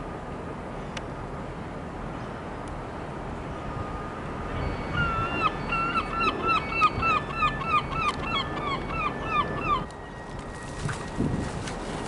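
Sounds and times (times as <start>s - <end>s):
faint high whine: 3.4s - 7.9s.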